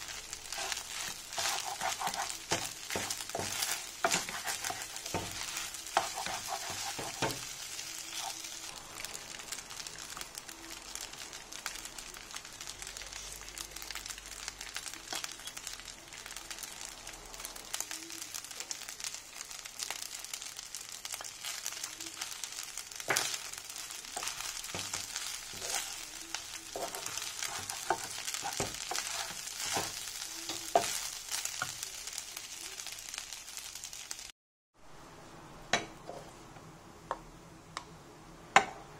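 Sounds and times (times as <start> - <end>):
wooden spatula scraping a pan: 0.0 - 8.5, 24.1 - 31.2
fried rice sizzling in a frying pan: 0.0 - 34.3.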